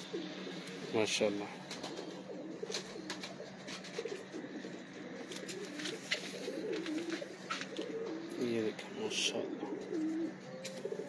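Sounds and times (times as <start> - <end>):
pigeons cooing: 0.0 - 11.0
wing clicks and rustles: 1.7 - 8.2.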